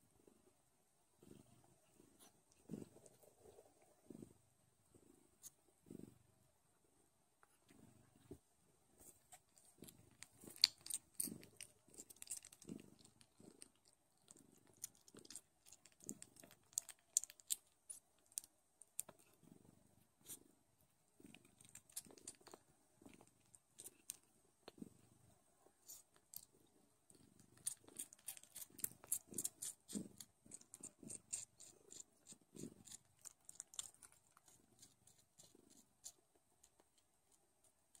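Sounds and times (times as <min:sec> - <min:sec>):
cat purring: 0:00.0 - 0:38.0
kittens suckling: 0:27.4 - 0:36.8.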